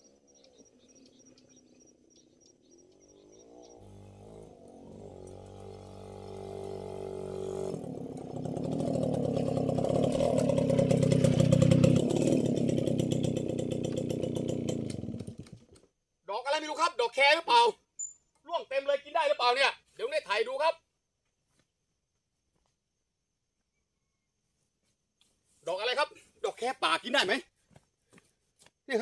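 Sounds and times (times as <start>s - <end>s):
crickets chirping: 0.0s - 3.9s
small motorcycle engine approaching: 0.0s - 15.8s.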